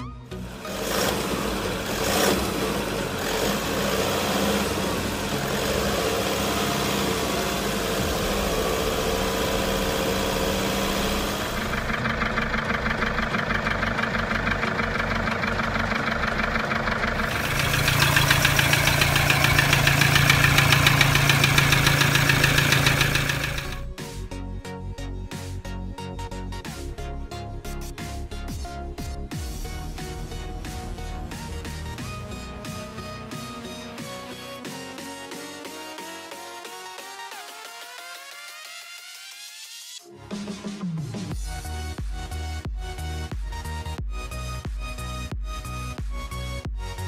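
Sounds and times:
diesel engine idling: 0.3s - 24.0s
rapid even engine knocking: 0.7s - 23.8s.

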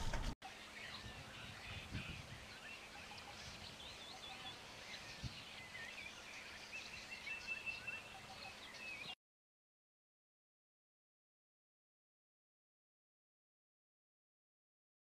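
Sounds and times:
small birds chirping: 0.1s - 9.2s.

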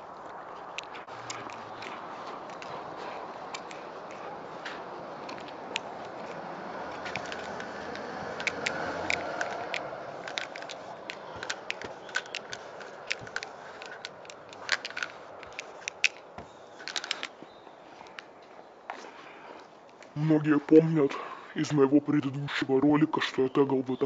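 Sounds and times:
sharp clicks and taps: 7.0s - 17.3s.

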